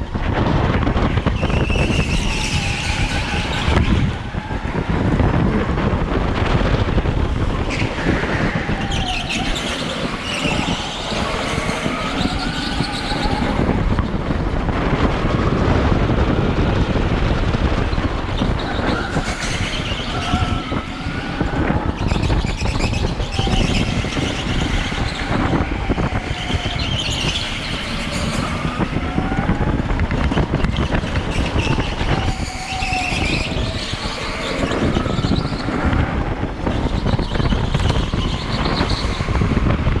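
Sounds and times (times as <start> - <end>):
go-kart rumbling over concrete: 0.0 - 40.0
tyre squeals: 1.4 - 4.6, 7.6 - 13.8, 18.4 - 29.5, 30.3 - 39.7.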